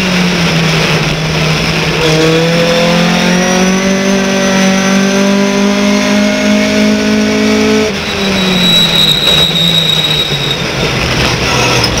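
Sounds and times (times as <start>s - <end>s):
high whine: 7.2s - 11.4s.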